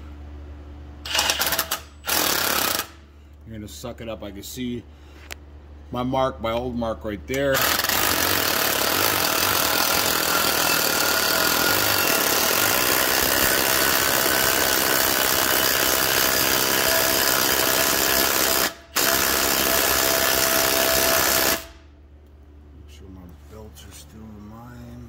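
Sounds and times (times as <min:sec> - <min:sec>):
impact wrench hammering: 0:01.1 - 0:03.0, 0:07.5 - 0:21.8.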